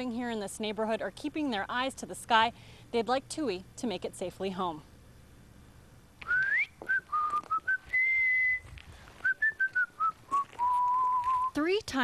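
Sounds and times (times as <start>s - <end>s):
woman whistling a tune: 6.2s - 11.6s.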